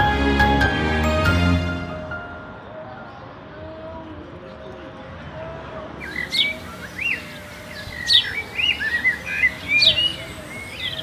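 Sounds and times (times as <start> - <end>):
songbirds chirping: 2.4 - 11.0.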